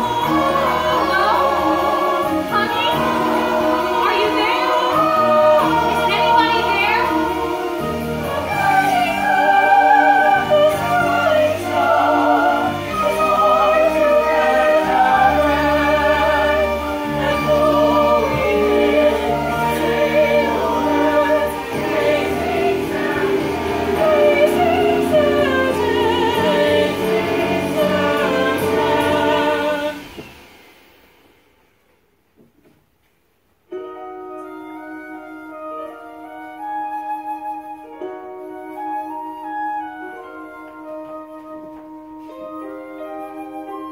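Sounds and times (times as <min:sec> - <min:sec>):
sustained backing chords: 0:00.0 - 0:31.4.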